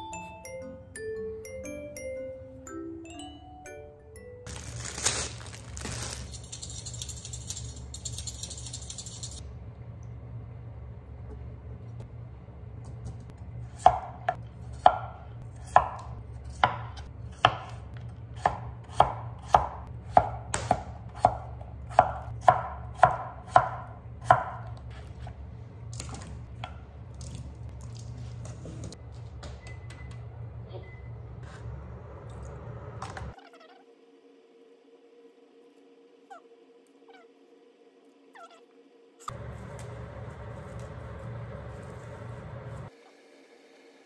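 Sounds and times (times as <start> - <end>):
knife chopping on wooden board: 13.8 - 25.3.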